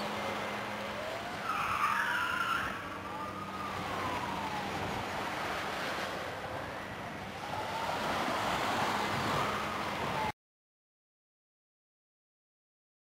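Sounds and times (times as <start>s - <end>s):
small waves washing on beach: 0.0s - 10.3s.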